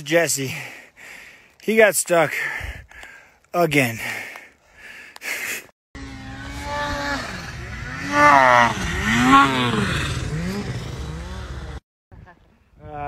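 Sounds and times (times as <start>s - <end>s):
snowmobile engine revving: 6.0s - 11.8s.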